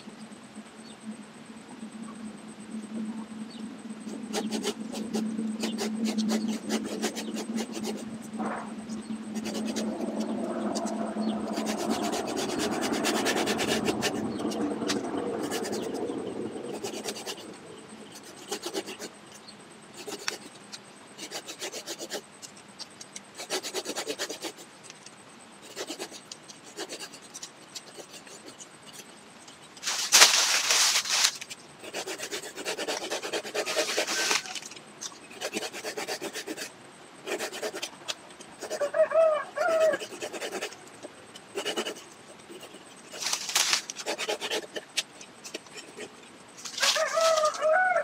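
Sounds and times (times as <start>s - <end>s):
low steady hum: 0.0s - 48.0s
hand saw rasping through branch: 4.2s - 8.1s, 9.3s - 16.0s, 16.7s - 17.5s, 18.1s - 19.1s, 20.0s - 20.5s, 21.2s - 22.2s, 23.4s - 24.6s, 25.6s - 29.0s, 29.8s - 34.6s, 35.3s - 37.9s, 39.6s - 40.8s, 41.5s - 47.6s.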